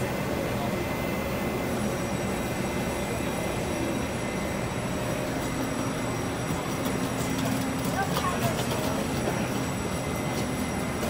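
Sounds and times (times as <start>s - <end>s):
high-pitched whines: 0.0s - 8.0s
crowd murmur: 0.0s - 11.0s
electric locomotive rumble and hum: 0.0s - 11.0s.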